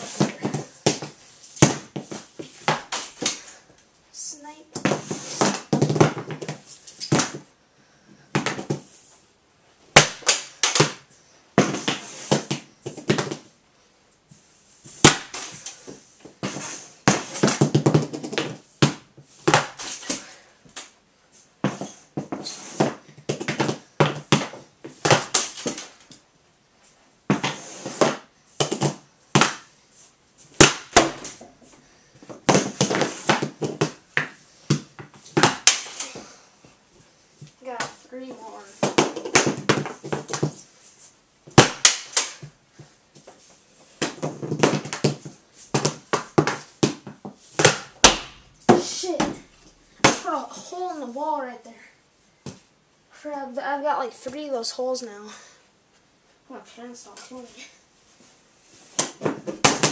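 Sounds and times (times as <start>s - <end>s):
hockey stick hitting puck: 0.0s - 3.4s, 4.8s - 7.4s, 10.0s - 11.0s, 11.6s - 13.4s, 15.0s - 20.2s, 21.6s - 26.0s, 27.3s - 29.7s, 30.6s - 31.5s, 32.3s - 36.3s, 38.7s - 40.6s, 41.5s - 42.5s, 44.0s - 49.4s, 50.0s - 50.4s, 58.9s - 59.9s
pucks hitting metal frame: 41.6s - 42.4s, 44.0s - 49.4s.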